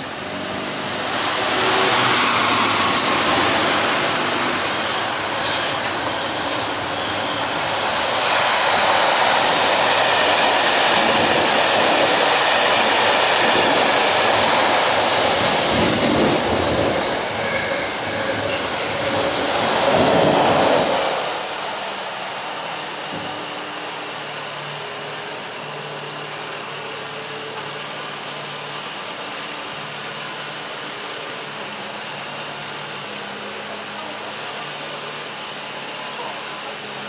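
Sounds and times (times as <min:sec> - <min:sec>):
loud rushing noise: 0:00.0 - 0:24.8.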